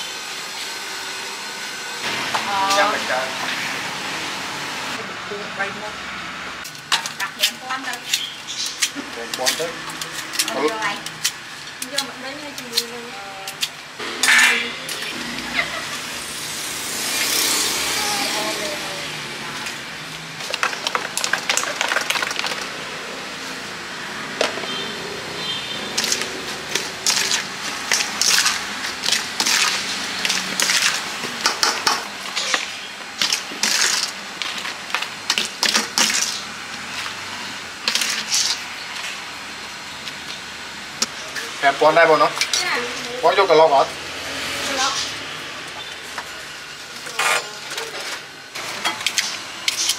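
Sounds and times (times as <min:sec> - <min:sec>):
metal spoon scraping steel bowl: 0:14.2 - 0:15.1.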